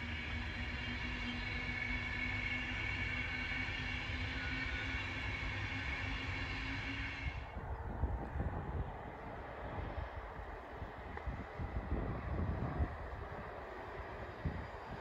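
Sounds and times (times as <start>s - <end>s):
freight train rumbling past: 0.0s - 15.0s
wind buffeting microphone: 7.4s - 15.0s.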